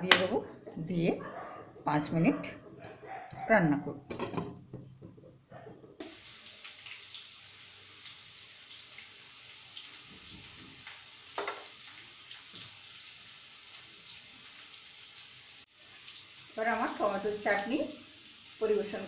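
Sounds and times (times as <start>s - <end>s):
chutney sizzling in a pan: 6.0s - 19.0s.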